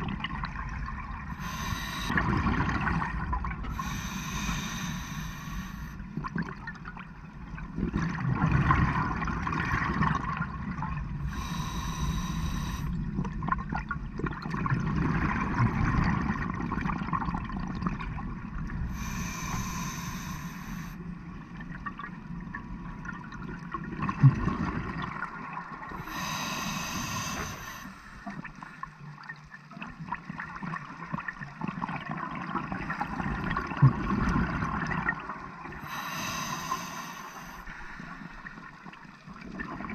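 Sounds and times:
regulator inhalation hiss: 1.4s - 2.2s, 3.7s - 6.0s, 11.3s - 12.9s, 18.9s - 21.0s, 26.0s - 28.2s, 35.8s - 38.5s
bubbles rushing on exhalation: 2.1s - 3.6s.

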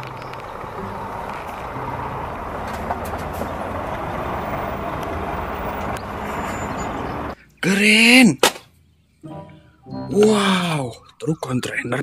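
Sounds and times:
truck diesel engine: 0.0s - 7.5s
tyre and road noise: 0.0s - 9.2s.

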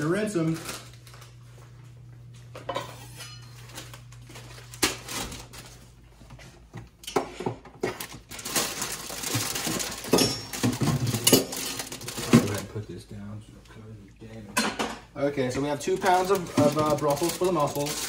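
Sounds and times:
kitchen clatter and rustling: 2.6s - 5.8s, 6.4s - 12.8s, 14.5s - 18.0s.

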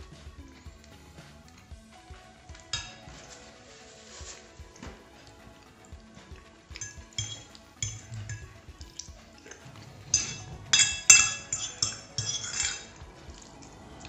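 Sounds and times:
fork clinking on ceramic plate: 6.8s - 12.9s.

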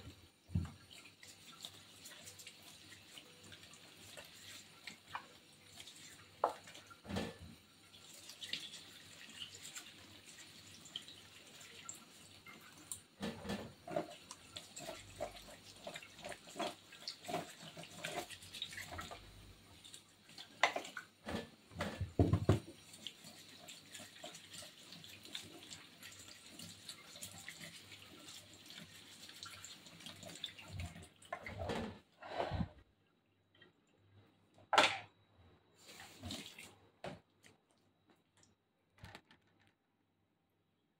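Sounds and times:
tap running into a sink: 0.0s - 0.9s, 6.4s - 7.6s, 20.6s - 22.8s.

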